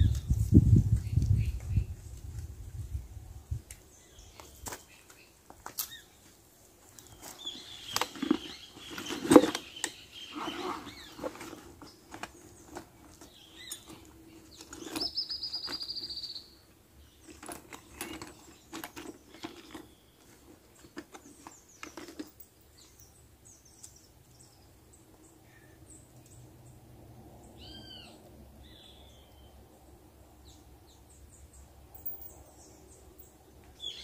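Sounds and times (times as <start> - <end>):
gear rustling with clicks and knocks: 6.8 - 16.0, 17.2 - 23.0.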